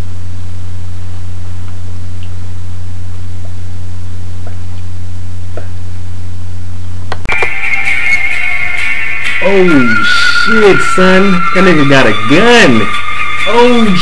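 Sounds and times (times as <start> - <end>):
low electrical hum: 0.0 - 7.3.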